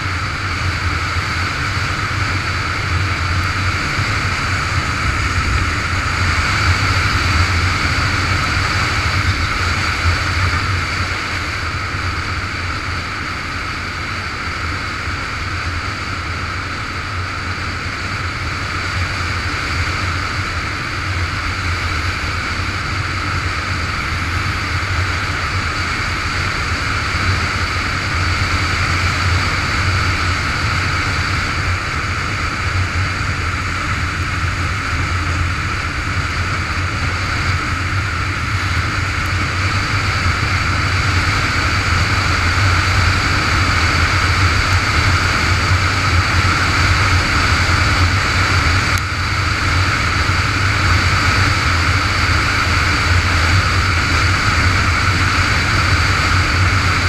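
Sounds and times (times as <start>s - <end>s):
motorcycle engine drone: 0.0s - 57.0s
wind rushing over microphone: 0.0s - 57.0s.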